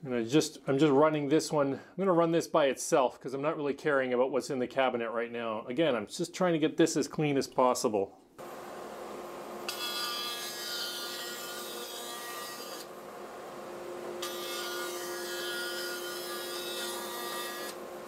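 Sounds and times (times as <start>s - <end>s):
dust collector humming: 8.4s - 18.0s
bandsaw cutting wood: 9.6s - 12.9s, 14.2s - 18.0s.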